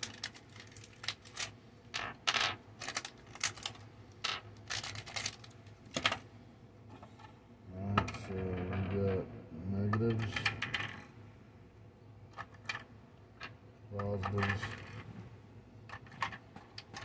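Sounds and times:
batteries clicking and plastic crackling: 0.0s - 6.2s, 15.8s - 17.0s.

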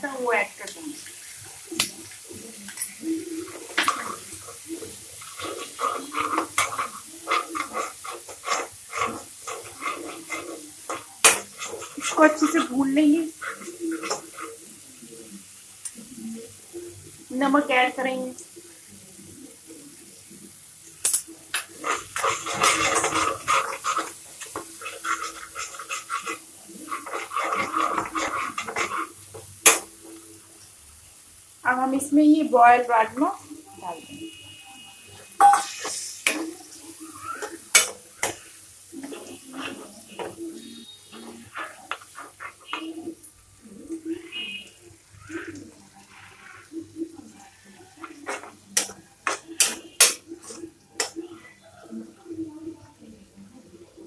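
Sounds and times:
paste sizzling: 0.0s - 52.7s
spatula scraping pan: 2.8s - 15.2s, 21.5s - 30.2s, 35.2s - 44.7s, 45.3s - 51.2s.

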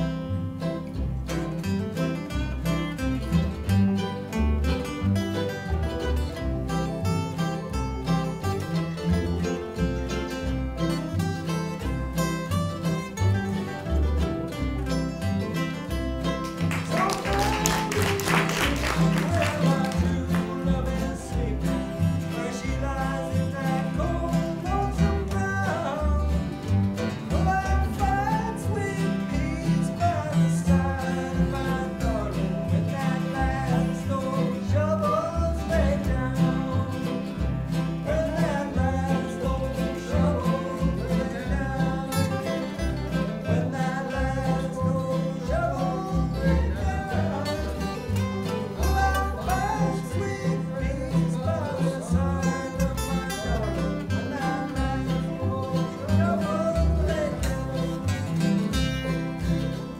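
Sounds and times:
acoustic guitars strumming: 0.0s - 59.9s
mandolin: 0.0s - 59.9s
upright bass: 0.0s - 59.9s
person singing: 16.8s - 37.4s, 38.0s - 59.2s.

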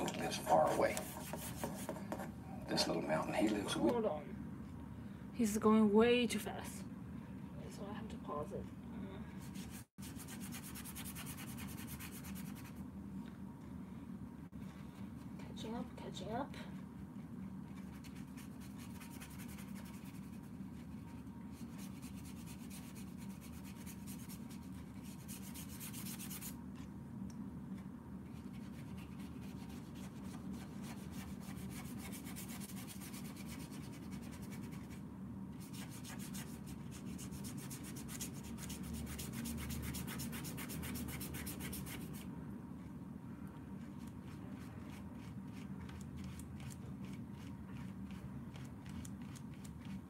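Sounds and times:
paintbrush scrubbing on paper: 0.0s - 2.2s, 9.4s - 12.8s, 17.2s - 26.6s, 28.3s - 35.0s, 35.6s - 42.3s, 43.8s - 50.0s.

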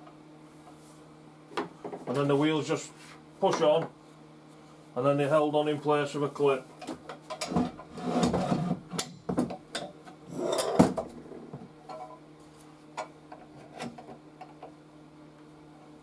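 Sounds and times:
metal tank scraping on workbench: 7.5s - 8.9s.

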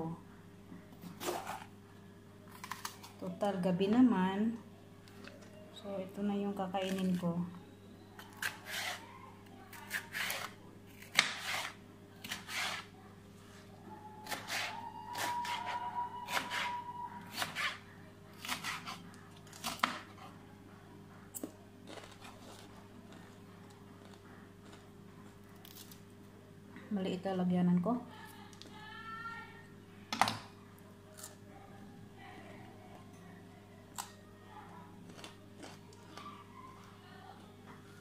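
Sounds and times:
knife slicing on cutting board: 11.1s - 12.9s.

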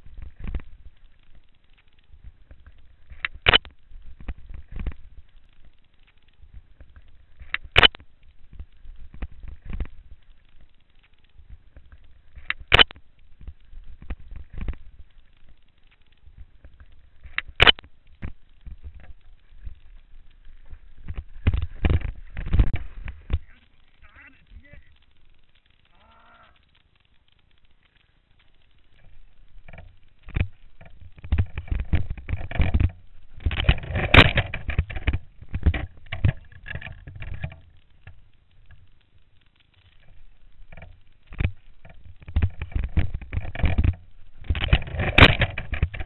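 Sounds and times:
mountain bike rattling: 0.0s - 24.0s, 27.7s - 46.0s
wind rumble on microphone: 29.6s - 38.1s, 40.3s - 46.0s.

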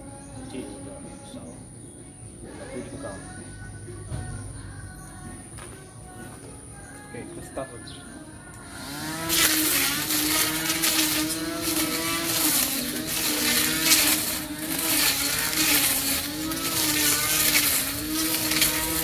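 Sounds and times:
grass trimmer motor whine: 8.6s - 19.0s
grass being slashed: 8.7s - 19.0s.

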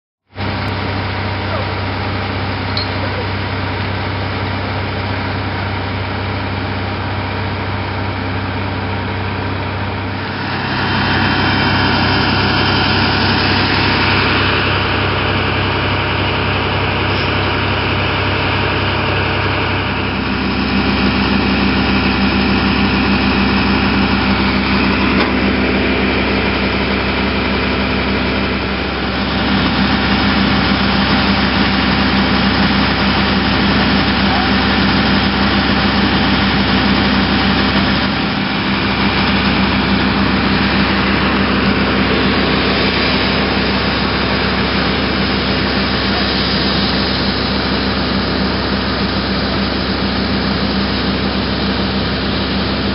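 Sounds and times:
diesel engines running: 0.3s - 52.9s.

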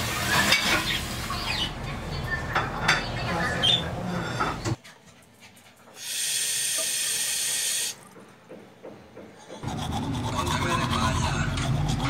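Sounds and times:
toothbrush scrubbing teeth: 9.6s - 12.0s.

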